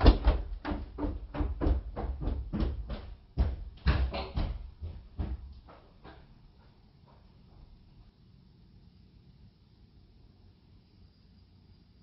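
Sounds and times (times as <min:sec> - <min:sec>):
quick footsteps: 0:00.0 - 0:08.0.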